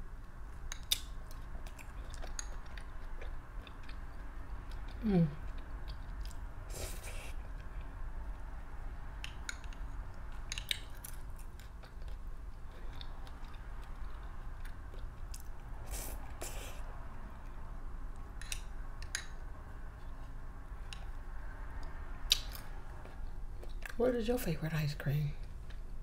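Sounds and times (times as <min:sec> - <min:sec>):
steady low hum: 0:00.0 - 0:26.0
chewing and mouth sounds: 0:00.1 - 0:08.5, 0:09.2 - 0:21.2, 0:21.8 - 0:24.0.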